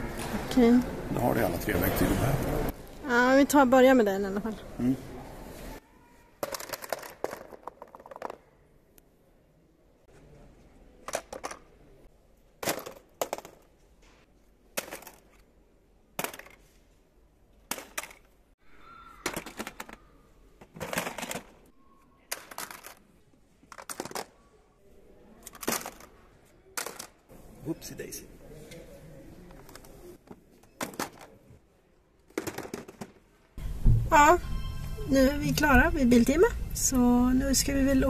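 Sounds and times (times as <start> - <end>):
items clattering into plastic basket: 6.4 - 8.5, 20.6 - 21.7, 22.3 - 23.0, 25.5 - 26.1, 32.3 - 33.4.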